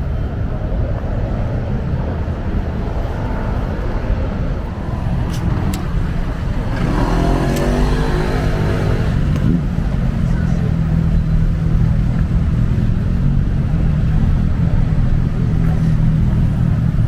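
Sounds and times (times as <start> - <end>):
rumble of street traffic: 0.0 - 17.0
vehicle engine accelerating: 1.8 - 17.0
sharp clicks: 5.2 - 6.0.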